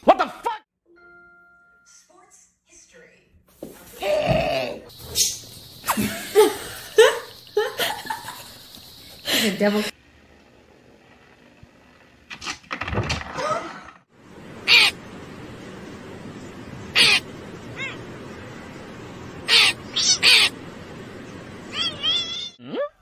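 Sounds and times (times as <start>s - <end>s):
outdoor hiss: 3.4s - 12.4s, 14.1s - 22.6s
crow cawing: 14.6s - 15.0s, 16.9s - 17.3s, 19.4s - 20.5s.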